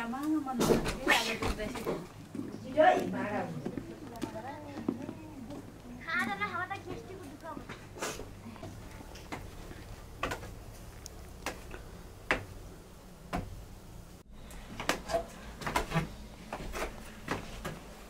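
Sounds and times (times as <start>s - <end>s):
footsteps on wooden boards: 3.0s - 10.8s, 14.7s - 17.9s.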